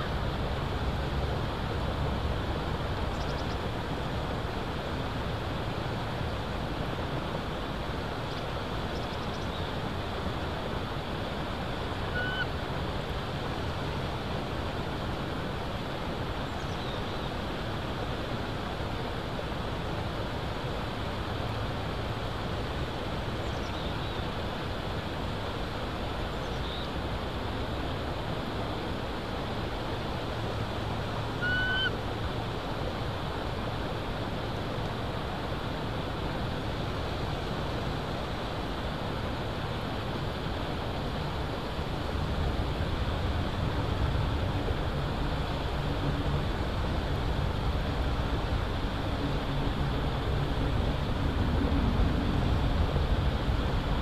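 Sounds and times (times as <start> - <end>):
wind rushing through pines: 0.0 - 54.0.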